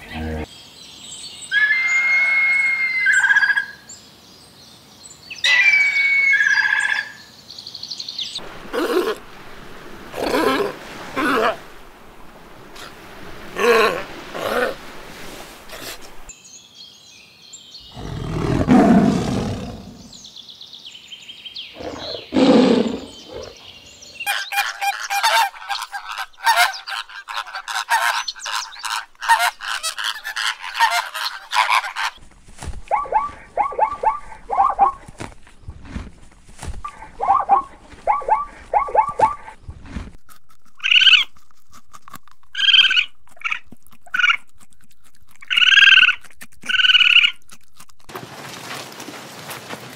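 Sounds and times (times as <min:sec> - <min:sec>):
sea lion barking: 0:10.1 - 0:11.7, 0:32.9 - 0:35.1, 0:36.8 - 0:39.6
flamingos honking and chattering: 0:24.2 - 0:32.2, 0:36.8 - 0:39.6
rapid repeated animal calls: 0:24.2 - 0:32.2, 0:32.9 - 0:35.1, 0:36.8 - 0:39.6, 0:40.8 - 0:41.3, 0:42.6 - 0:44.6, 0:45.4 - 0:47.5.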